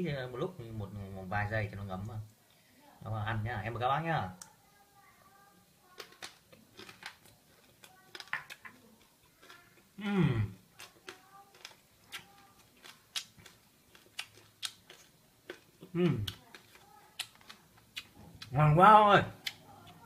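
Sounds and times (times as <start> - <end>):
crunching and chewing: 5.7 - 18.6, 19.3 - 20.0.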